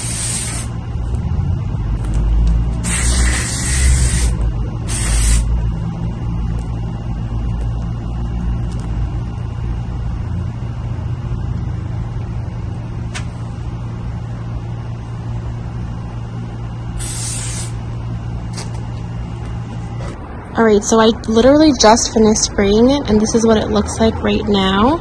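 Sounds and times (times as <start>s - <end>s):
aerosol spray hissing: 0.0s - 0.7s, 2.8s - 5.5s, 17.0s - 17.8s
low traffic rumble: 0.0s - 25.0s.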